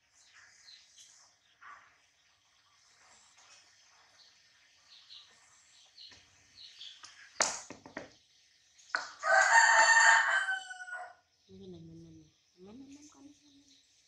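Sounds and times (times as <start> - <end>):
rooster crowing: 9.2 - 11.2
faint bird chirps: 10.5 - 14.0.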